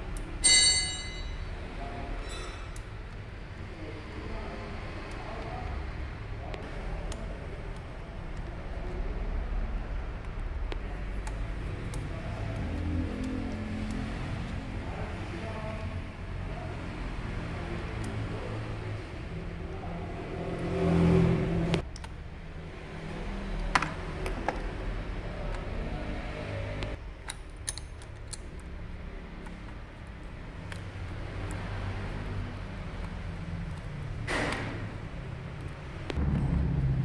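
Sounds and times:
tools clicking on metal parts: 27.2s - 35.8s
low engine hum: 28.8s - 37.0s.

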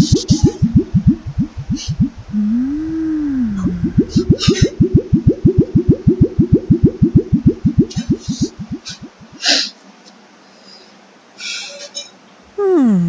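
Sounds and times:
cartoon rising tones: 0.0s - 9.3s.

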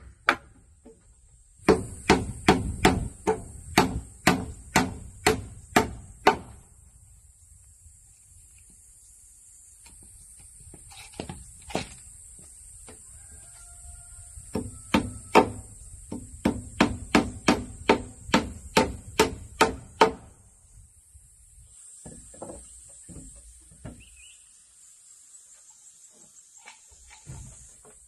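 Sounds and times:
hammer nailing wooden planks: 1.6s - 6.6s, 14.5s - 20.3s.

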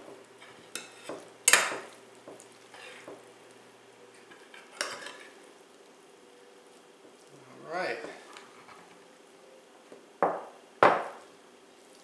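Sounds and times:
metal spoon scraping ceramic dish: 4.8s - 5.3s.

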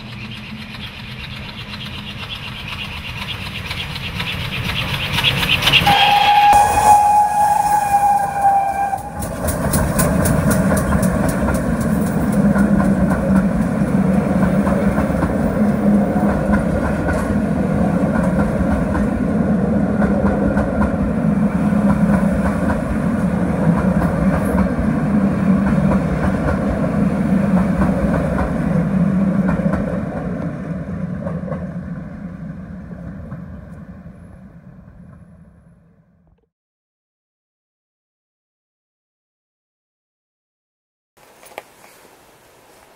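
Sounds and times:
wheels clicking over rail joints: 0.0s - 6.0s, 8.3s - 31.8s
train rolling rumble: 0.0s - 36.3s
steam locomotive whistle: 5.8s - 10.0s.

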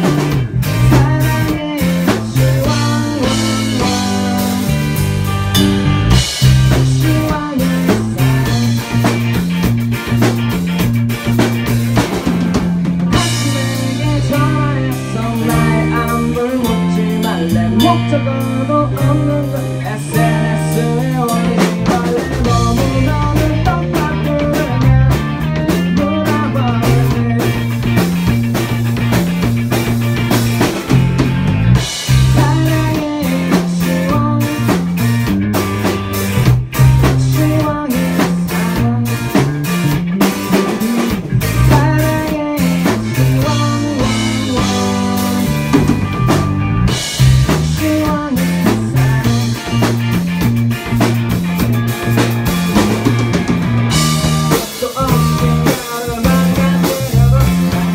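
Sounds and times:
rock band playing: 0.0s - 57.9s
man singing lead vocal: 0.7s - 5.2s, 6.7s - 9.2s, 13.1s - 28.0s, 32.1s - 35.1s, 36.8s - 39.7s, 40.4s - 46.1s, 47.4s - 50.0s, 53.9s - 57.9s.

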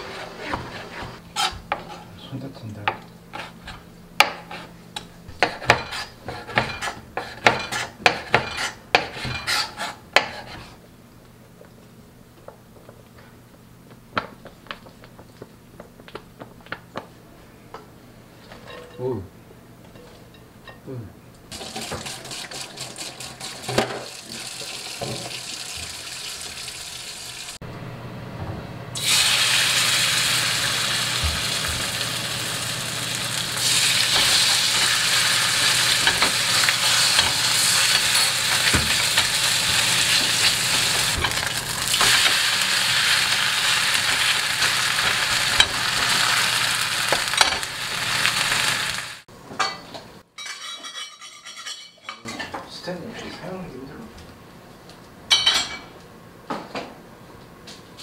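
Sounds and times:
batter sizzling in frying pan: 21.5s - 27.6s, 29.0s - 49.3s.

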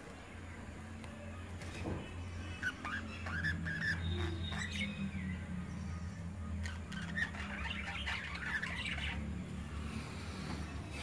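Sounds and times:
steady low hum: 0.0s - 11.0s
budgerigars chirping: 2.2s - 9.8s.

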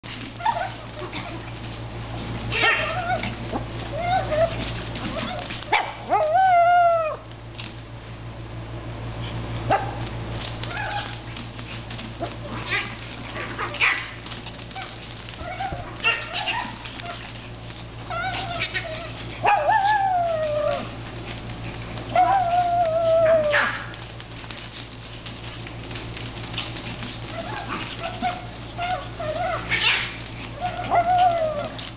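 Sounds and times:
steady low hum: 0.0s - 31.9s
dogs yipping and barking: 0.1s - 7.3s, 9.7s - 24.2s, 26.2s - 31.9s
dog whining yelp: 0.4s - 1.5s, 2.5s - 7.3s, 10.6s - 11.3s, 12.2s - 17.4s, 18.0s - 21.0s, 22.1s - 24.0s, 27.3s - 31.9s.

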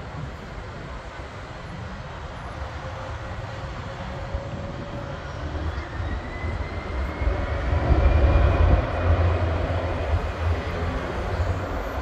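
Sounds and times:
jet engines roaring: 0.0s - 12.0s
jet engine whine rising: 2.6s - 12.0s.

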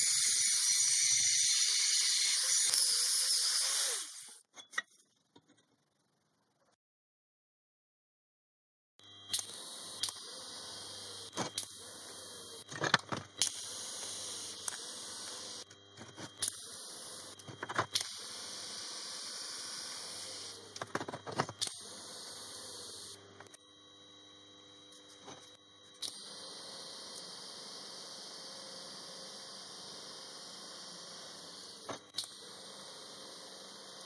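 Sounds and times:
welding arc hissing: 0.0s - 4.4s, 9.3s - 12.7s, 13.4s - 21.0s, 21.6s - 23.2s, 26.0s - 34.0s.

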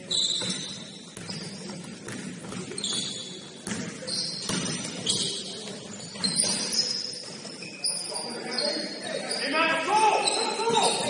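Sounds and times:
low murmur of hall: 0.0s - 11.0s
sneaker squeaks on floor: 0.0s - 11.0s
basketball bouncing: 0.4s - 6.6s.

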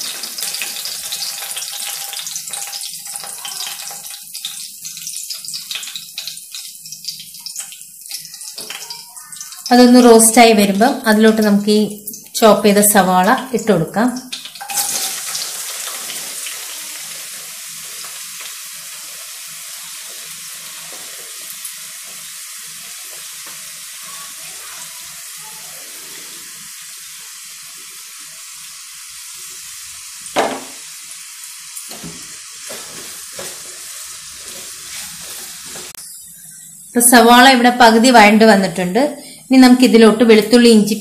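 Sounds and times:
onions sizzling in hot oil: 0.0s - 41.0s
loud knock: 30.4s - 30.8s
spatula scraping and tapping pan: 31.9s - 36.0s.

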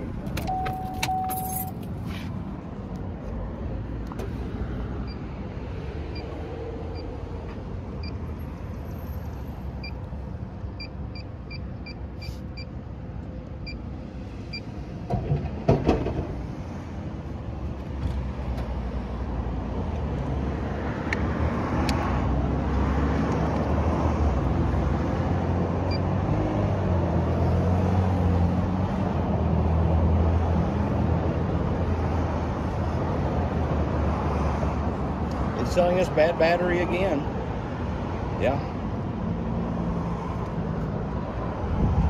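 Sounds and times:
motor vehicle noise: 0.0s - 42.0s.

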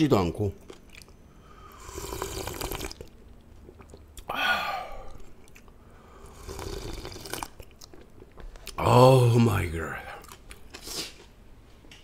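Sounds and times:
person slurping and swallowing: 1.8s - 8.8s.

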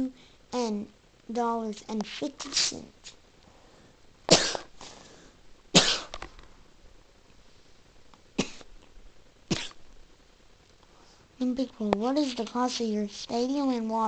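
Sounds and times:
person coughing: 4.3s - 4.7s, 5.8s - 6.2s, 8.4s - 8.7s, 9.5s - 9.8s.

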